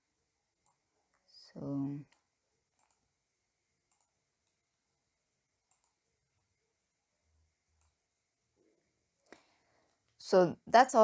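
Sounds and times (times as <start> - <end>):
computer mouse clicks: 0.6 - 1.2, 2.1 - 3.0, 3.9 - 4.6, 5.6 - 6.0, 7.8 - 8.0, 9.2 - 9.5.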